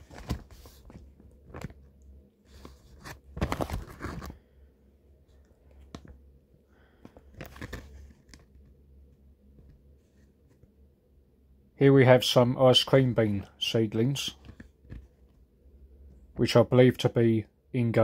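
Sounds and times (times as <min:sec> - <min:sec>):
plastic crinkling and crunching: 0:00.0 - 0:01.8, 0:07.2 - 0:08.4
steady low hum: 0:00.0 - 0:18.0.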